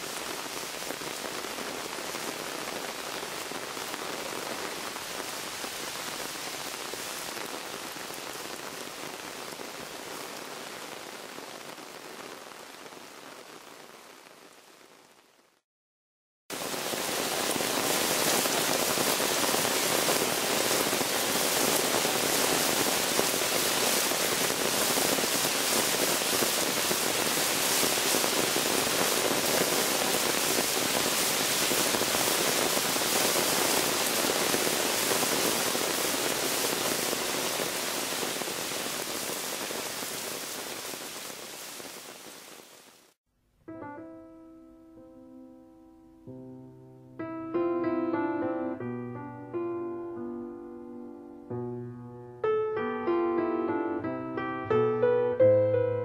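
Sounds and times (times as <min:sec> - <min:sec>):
rainwater rushing: 0:00.0 - 0:14.6, 0:16.5 - 0:43.2.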